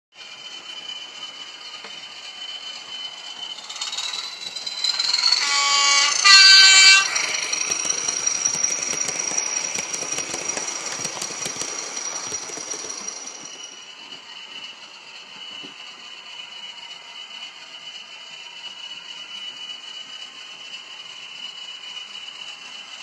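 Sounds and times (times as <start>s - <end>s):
model diesel engine sound: 0.2s - 23.0s
high whine: 2.6s - 13.9s
two-note train horn: 5.1s - 7.7s.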